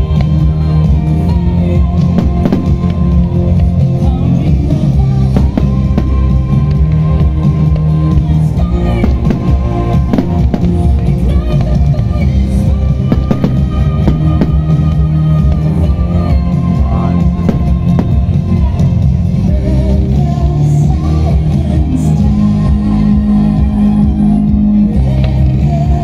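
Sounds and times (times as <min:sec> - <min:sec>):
loud music with singing and drums: 0:00.0 - 0:26.0
fireworks bursting: 0:01.3 - 0:19.3.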